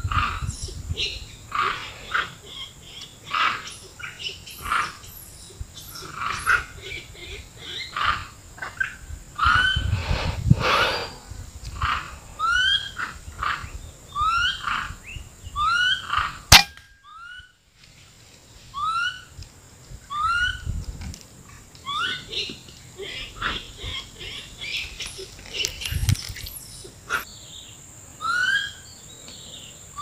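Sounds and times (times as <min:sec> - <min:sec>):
rifle shot: 0:16.5 - 0:16.9.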